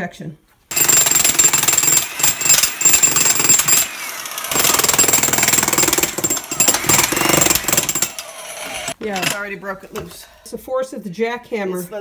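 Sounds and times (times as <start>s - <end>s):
demolition hammer pounding: 0.7s - 8.2s.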